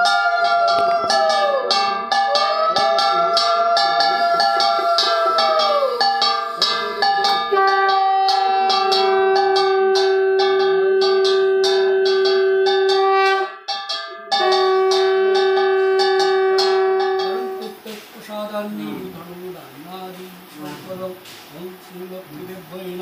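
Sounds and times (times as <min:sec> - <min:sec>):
conch shell long note: 0:00.0 - 0:17.8
small brass hand bell rung rapidly: 0:00.0 - 0:17.8.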